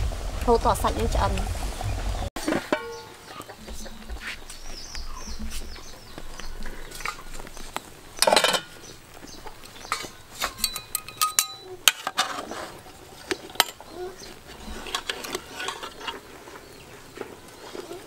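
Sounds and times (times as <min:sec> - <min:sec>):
chickens clucking: 0:01.3 - 0:10.7
light metal clinks: 0:09.8 - 0:11.7.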